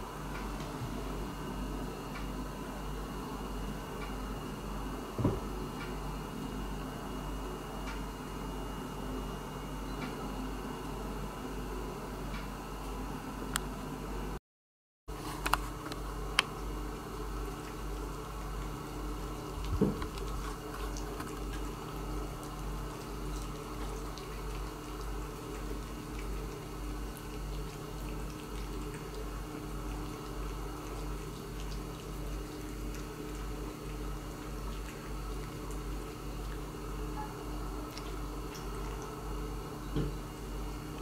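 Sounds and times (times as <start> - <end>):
steady low hum: 0.0 - 14.4, 15.1 - 41.0
cat lapping and chewing: 15.2 - 41.0.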